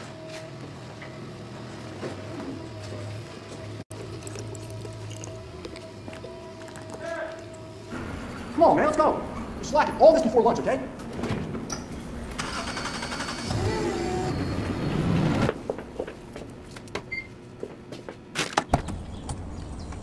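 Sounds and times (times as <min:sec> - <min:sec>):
electric forklift motor whining: 0:12.2 - 0:15.5.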